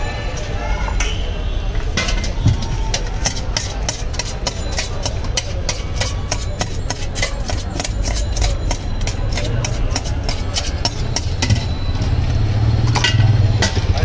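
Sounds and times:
blade clinking against steel tin: 2.0 - 12.2.

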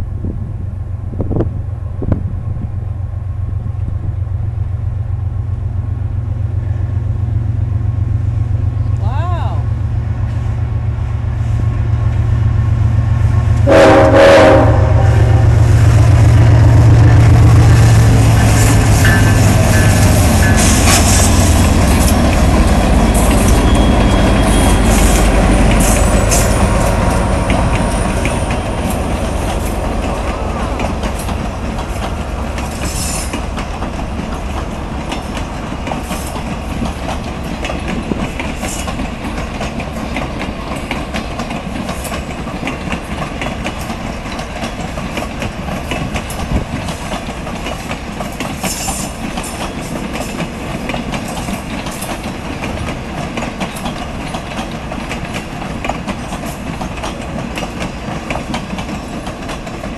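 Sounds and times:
diesel locomotive engine rumble: 0.0 - 59.9
wheels clicking over rail joints: 17.4 - 59.9.

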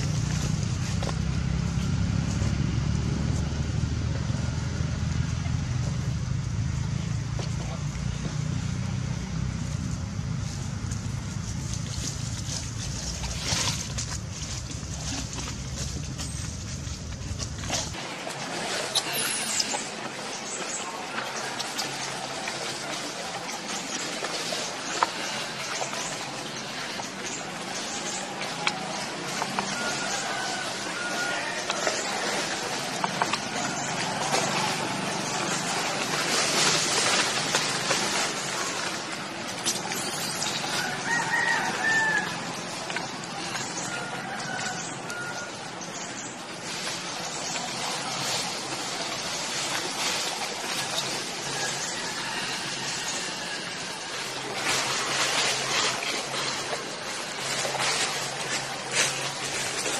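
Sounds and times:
dry leaves crackling and rustling: 0.0 - 2.0, 9.3 - 59.9
wind rumble on microphone: 0.0 - 18.0.

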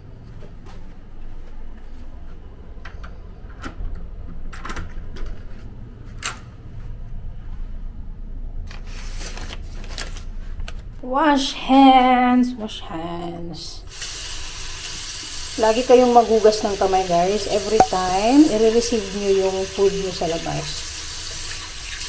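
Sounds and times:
paper bag rustling: 8.7 - 10.9.

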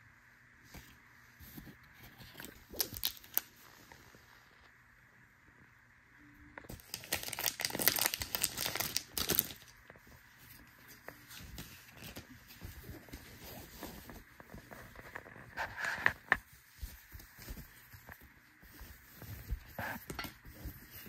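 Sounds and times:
wrapper crinkling as torn: 2.3 - 3.6, 6.7 - 9.8
cards rustling: 6.7 - 9.9.

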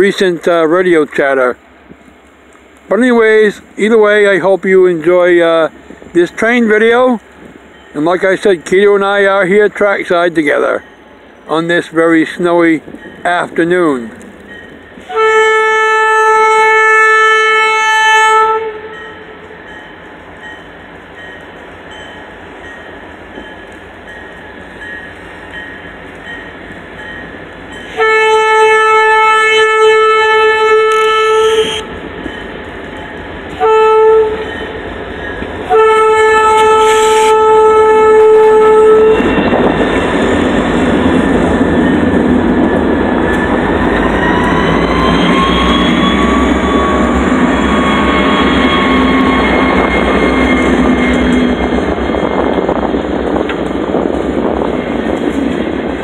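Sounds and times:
locomotive rumbling past: 0.0 - 56.0
locomotive air horn blasts: 15.0 - 19.4, 27.9 - 32.0, 33.6 - 34.7, 35.7 - 40.0, 44.1 - 51.7.

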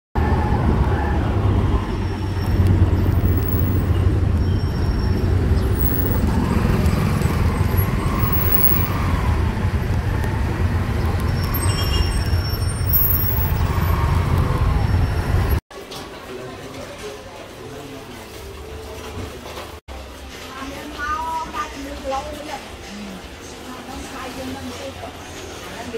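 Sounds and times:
street traffic engines: 0.2 - 15.6.

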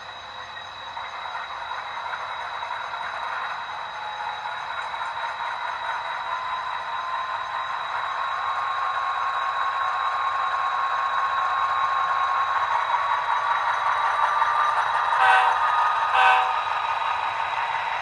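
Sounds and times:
model trains whirring: 0.0 - 18.0
model train horn toots: 15.2 - 16.7.

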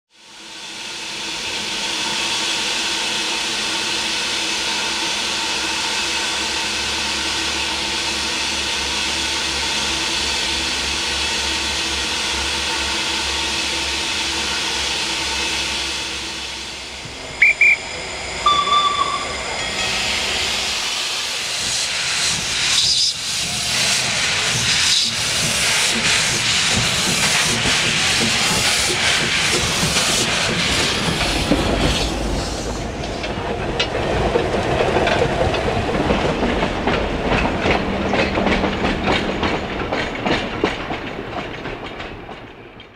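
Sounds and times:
steam hissing: 0.2 - 33.5
tram rumbling along track: 0.2 - 42.9
high whistle toots: 17.0 - 20.2
brief lower tone: 17.1 - 20.1.

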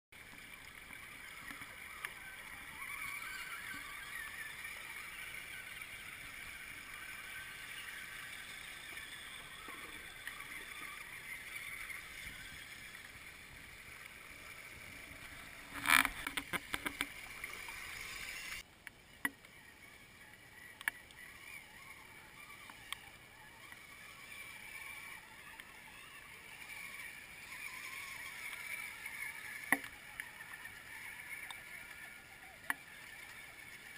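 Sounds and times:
creek water rushing: 0.2 - 18.6, 19.5 - 33.9
small clicks: 0.3 - 6.9, 15.2 - 19.6, 20.6 - 33.9.

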